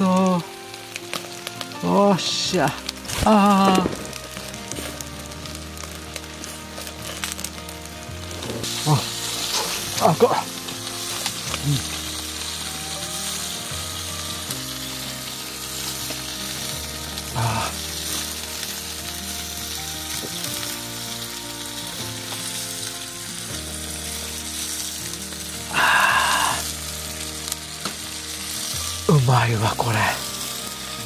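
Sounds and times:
skewers sizzling on a grill: 0.0s - 31.0s
soft background music: 0.0s - 31.0s
man exclaiming ahh: 3.2s - 4.0s, 17.4s - 17.8s, 25.7s - 26.6s.

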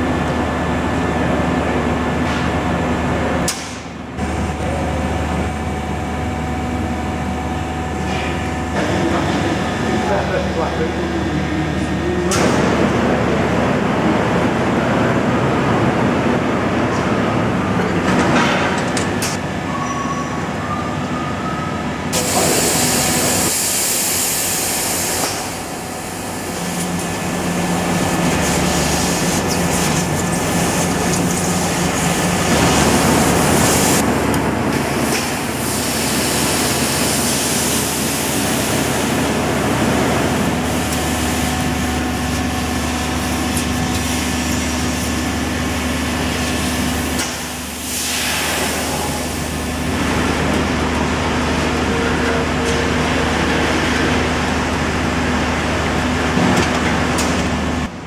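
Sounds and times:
laser cutting machine hum: 0.0s - 19.6s, 21.3s - 58.0s
loud hiss of cutting: 22.2s - 27.0s.

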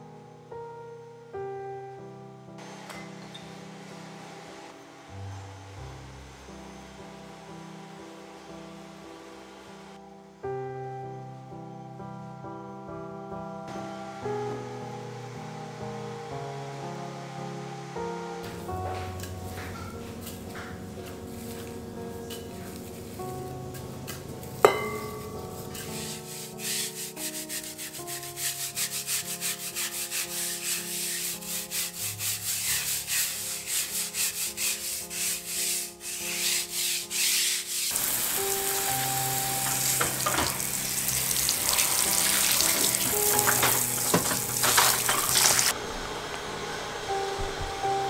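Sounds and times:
soft background music: 0.0s - 48.0s
scrubbing soapy table top: 19.0s - 45.7s
hose nozzle spraying water: 24.5s - 36.5s, 37.4s - 45.7s.

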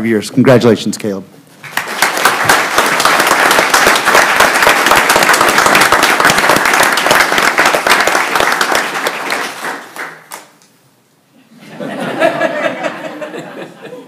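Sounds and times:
people applauding: 1.6s - 10.7s.

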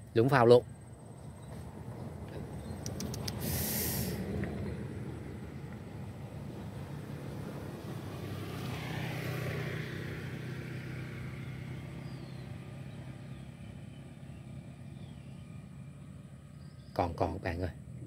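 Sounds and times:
vehicle engine passing by: 1.0s - 18.0s.

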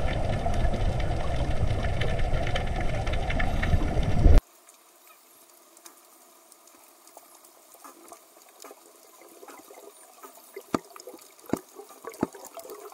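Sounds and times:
underwater crackling hiss: 1.5s - 12.9s
sharp underwater clicks: 5.8s - 12.9s.

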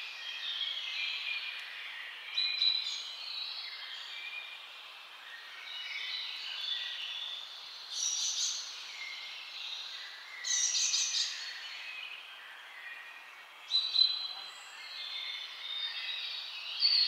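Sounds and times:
birds chirping and singing: 5.3s - 17.0s.

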